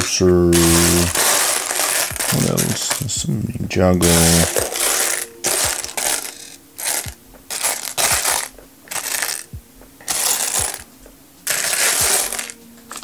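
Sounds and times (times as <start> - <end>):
plastic bricks clattering in tray: 0.5 - 3.2, 4.0 - 9.5, 10.1 - 10.8, 11.5 - 13.0.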